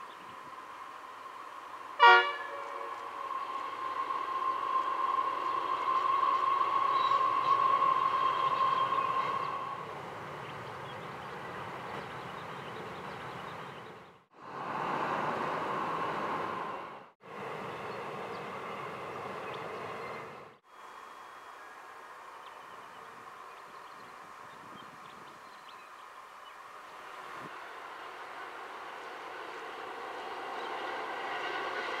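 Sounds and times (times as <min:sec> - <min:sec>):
train high whine: 0:00.0 - 0:13.0, 0:14.4 - 0:23.8, 0:27.0 - 0:32.0
train wagons rolling rumble: 0:00.0 - 0:20.6, 0:27.0 - 0:32.0
locomotive horn toot: 0:02.0 - 0:03.1.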